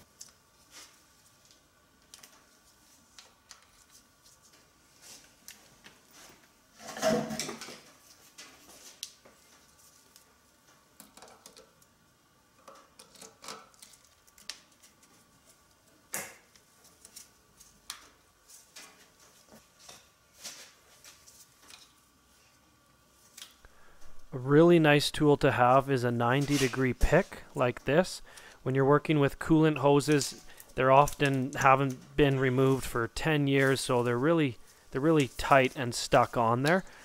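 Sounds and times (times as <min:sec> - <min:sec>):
faint steady hum: 0:00.0 - 0:37.0
scraping rustle: 0:26.3 - 0:27.3.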